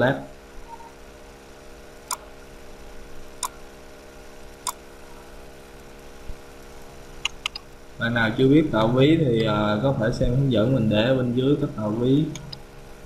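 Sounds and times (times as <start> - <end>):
faint electrical hum: 0.0 - 13.0
computer mouse clicks: 2.1 - 2.3, 7.2 - 7.7.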